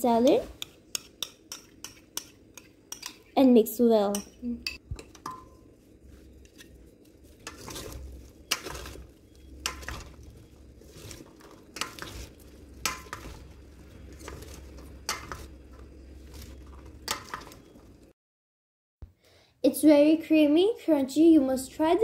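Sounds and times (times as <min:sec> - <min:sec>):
wood clacking on metal bowl: 0:04.1 - 0:05.6, 0:09.6 - 0:10.2, 0:12.8 - 0:13.4, 0:14.1 - 0:15.9
salad leaves rustling wetly: 0:05.7 - 0:18.1.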